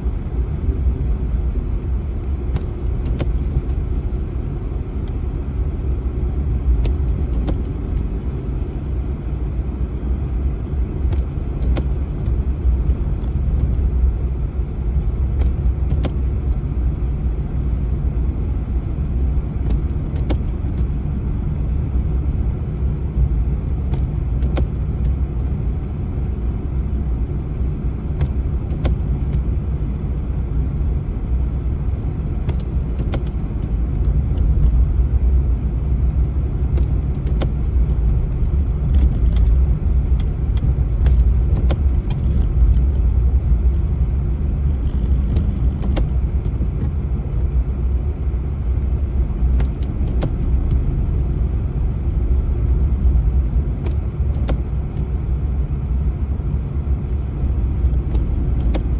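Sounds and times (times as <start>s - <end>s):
engine and tyre rumble: 0.0s - 58.9s
faint clicks and rattles: 36.7s - 43.9s, 44.7s - 47.0s.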